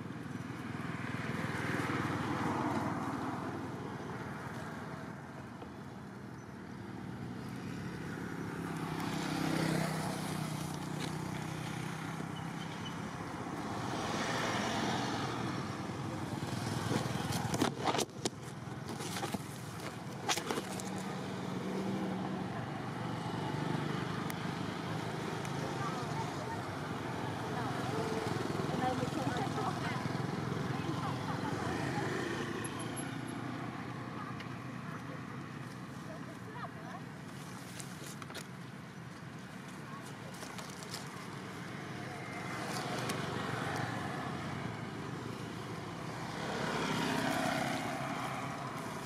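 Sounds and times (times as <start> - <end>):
distant road traffic: 0.0 - 49.0
sharp clicks and rustles: 16.8 - 21.2.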